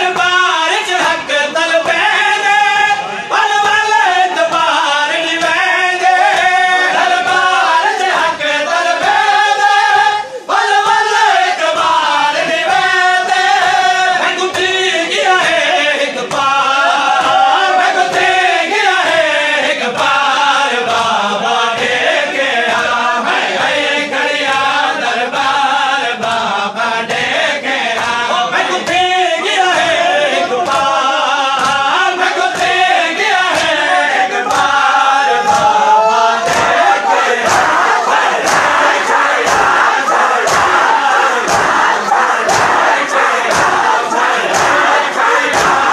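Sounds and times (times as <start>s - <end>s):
men chanting a lament: 0.0s - 45.9s
rhythmic chest-beating: 0.0s - 45.9s.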